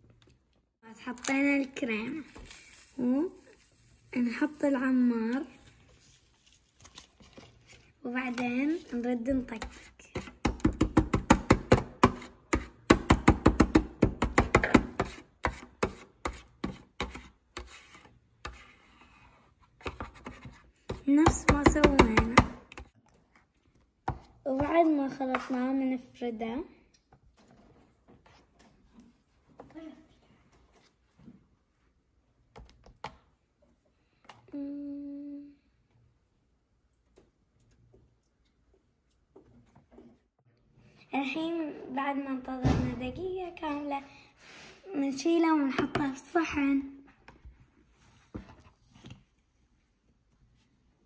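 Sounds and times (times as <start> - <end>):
plastic spatula tapping and scraping: 6.9 - 25.6, 32.5 - 33.3
plastic spatula tapping metal plate: 20.9 - 22.9.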